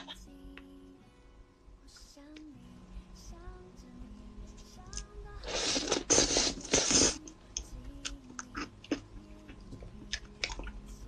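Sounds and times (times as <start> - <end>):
loud hissing slurps: 5.4 - 7.3.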